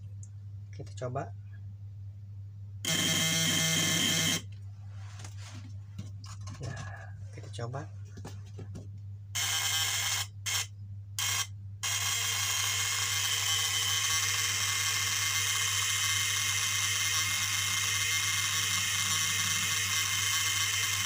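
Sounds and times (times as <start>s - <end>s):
inverter buzzing: 2.8s - 4.6s, 9.3s - 21.0s.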